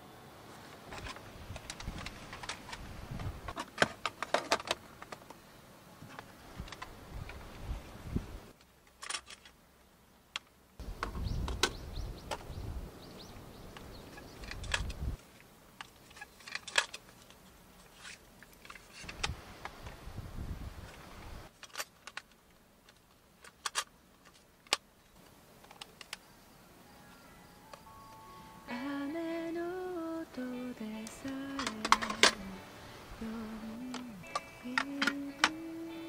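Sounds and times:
rubbing and handling noise: 30.8 - 32.7
plastic clicks and snaps: 31.0 - 32.4, 33.8 - 35.7.

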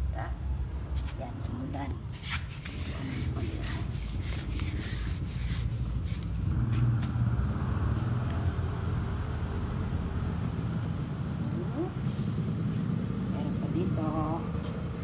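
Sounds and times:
scratchy rubbing and rustling: 1.0 - 7.0
low rumble: 6.5 - 15.0.

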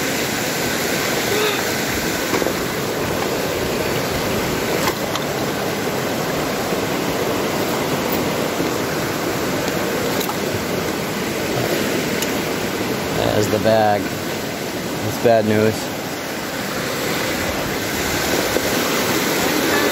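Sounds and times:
creek water rushing: 0.0 - 19.9.

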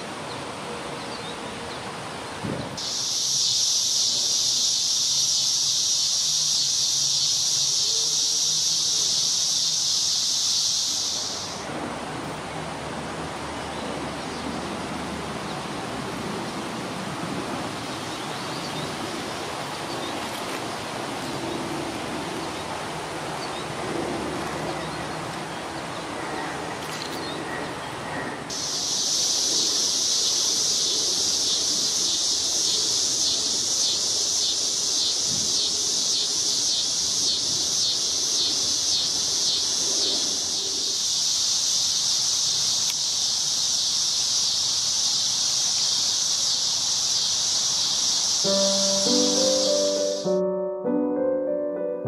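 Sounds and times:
soft outdoor noise: 0.0 - 52.0
insect chorus buzzing: 2.8 - 12.4, 24.5 - 50.4.

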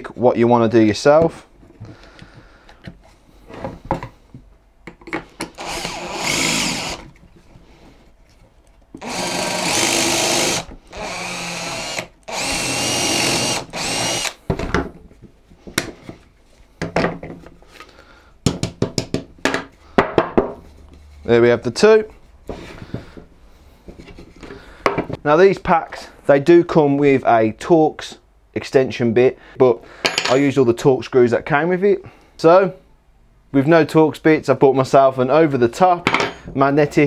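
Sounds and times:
cordless drill boring: 5.5 - 7.1, 9.0 - 14.4.

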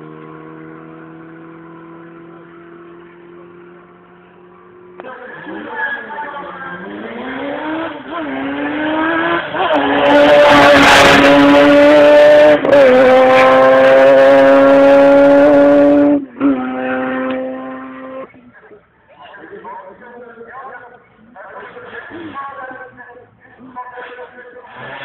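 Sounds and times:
race car engine accelerating: 0.0 - 18.4, 24.0 - 25.0.

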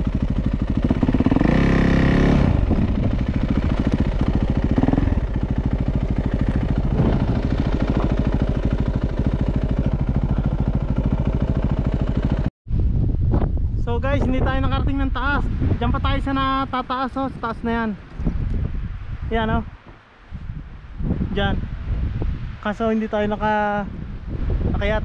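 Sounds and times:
dirt bike engine running: 0.0 - 13.7.

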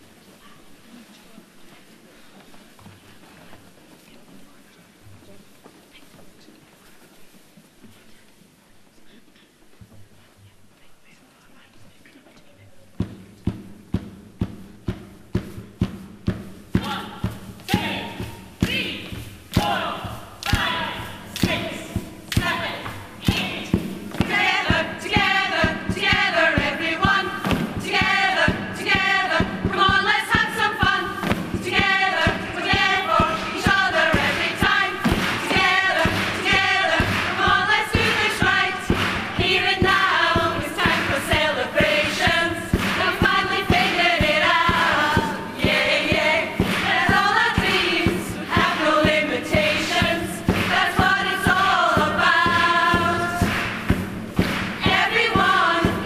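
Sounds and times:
steady thumping beat: 12.8 - 56.0
women's choir singing: 15.8 - 56.0.

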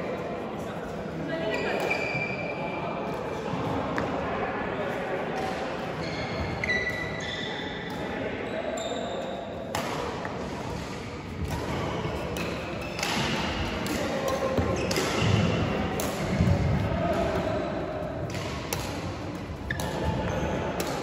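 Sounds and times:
racket striking shuttlecock: 11.4 - 17.4, 18.2 - 21.0.

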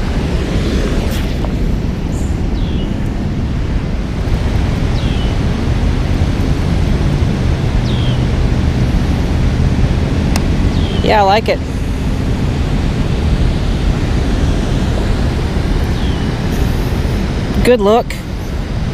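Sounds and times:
rushing river current: 0.0 - 18.9
wind buffeting microphone: 0.0 - 18.9.

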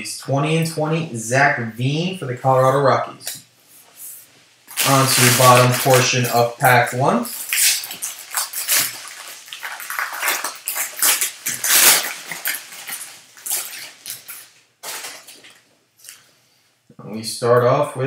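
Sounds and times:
card pack wrapper crinkling and tearing: 4.7 - 16.2.

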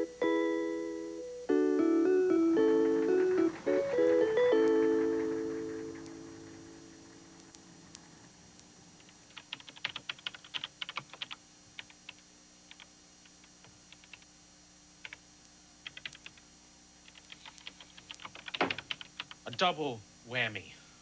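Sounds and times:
faint steady hum: 0.0 - 21.0
keyboard typing: 2.2 - 8.3, 9.0 - 14.3, 15.8 - 16.4, 17.1 - 19.6.

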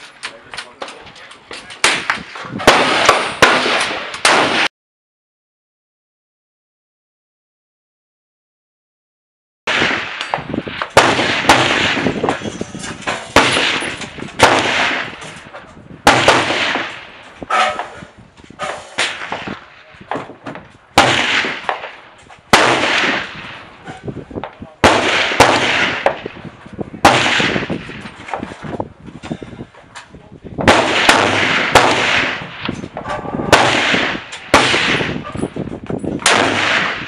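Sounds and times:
rifle shots echoing: 1.8 - 4.7, 9.7 - 18.0, 18.6 - 28.5, 30.6 - 35.5, 36.2 - 37.0.

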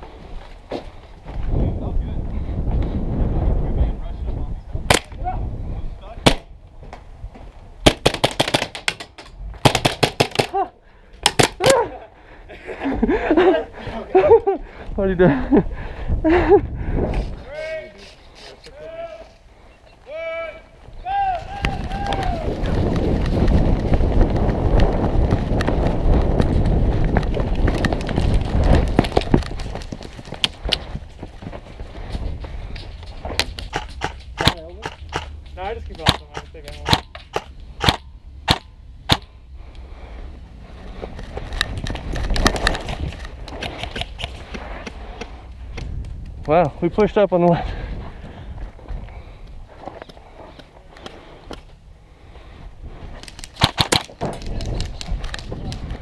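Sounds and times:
running footsteps on dirt: 0.0 - 3.2, 20.6 - 35.6, 39.7 - 46.8, 47.4 - 56.0
wind buffeting microphone: 0.9 - 7.8, 12.8 - 17.6, 20.7 - 50.4, 51.2 - 56.0
airsoft pistol shots: 4.9 - 5.2, 6.2 - 6.5, 7.8 - 9.0, 36.0 - 39.3
sharp clicks: 32.8 - 35.4.

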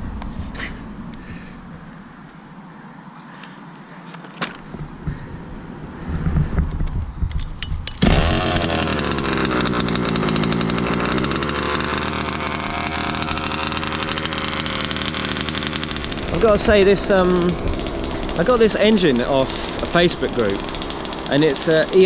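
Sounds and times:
pull-start rattling: 7.9 - 22.0
two-stroke engine idling: 8.0 - 22.0.

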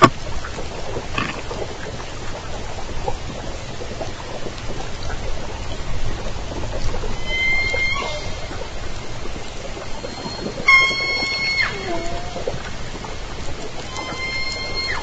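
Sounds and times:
killer whale call: 7.1 - 13.0, 13.8 - 15.0.

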